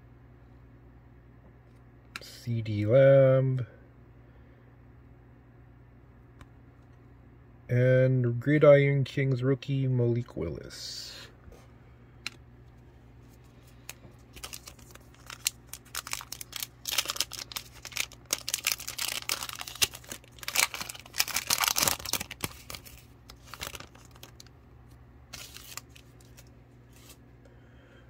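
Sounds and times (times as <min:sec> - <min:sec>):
foil wrapper tearing and crinkling: 0:13.8 - 0:24.5, 0:25.3 - 0:27.2.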